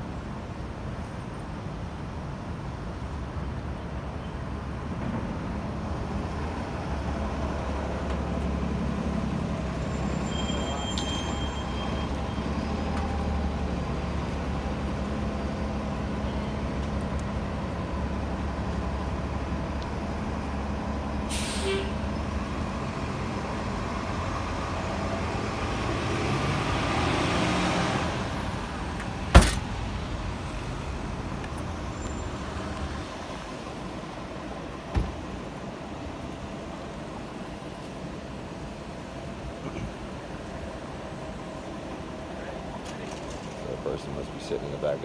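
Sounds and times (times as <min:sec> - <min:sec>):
passing traffic: 0:00.0 - 0:45.0
short air hiss: 0:21.3 - 0:22.0.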